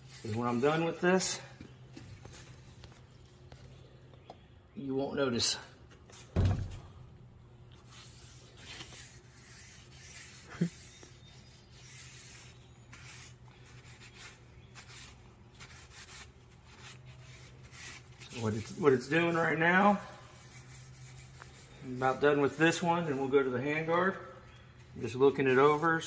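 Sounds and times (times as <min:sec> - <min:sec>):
paper towel rubbing on wood: 0:00.0 - 0:01.4, 0:07.8 - 0:24.0, 0:25.4 - 0:26.0.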